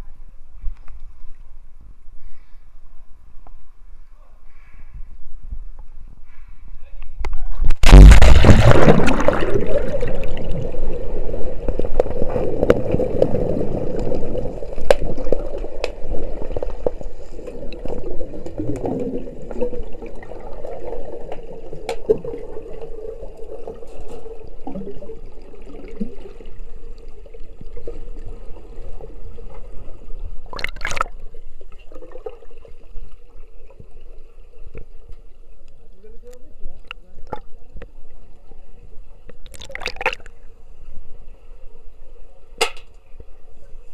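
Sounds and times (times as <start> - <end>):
faint steady hum: 0.0 - 43.9
muffled underwater water noise: 0.0 - 43.9
rush of water: 7.8 - 16.4, 30.5 - 31.2, 39.4 - 40.3.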